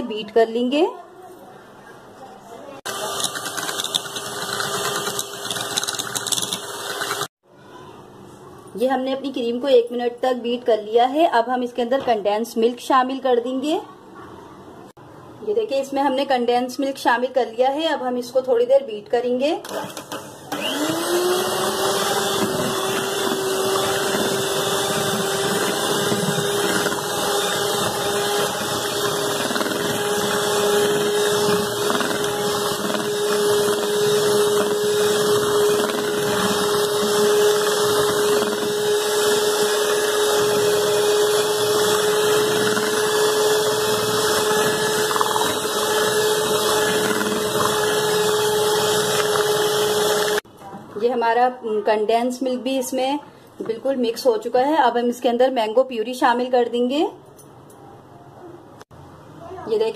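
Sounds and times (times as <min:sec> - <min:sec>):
electric hand mixer whine: 0:02.9 - 0:07.4, 0:19.7 - 0:50.4.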